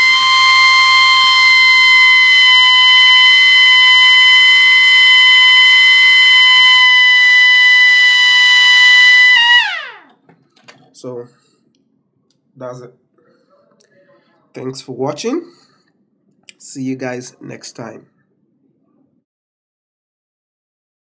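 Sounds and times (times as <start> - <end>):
motor siren wailing: 0.0 - 10.2.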